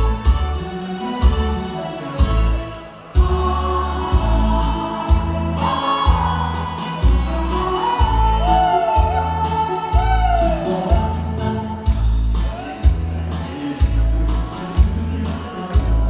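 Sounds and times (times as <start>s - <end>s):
instrumental backing track: 0.0s - 16.0s
steady bass beat: 3.2s - 16.0s.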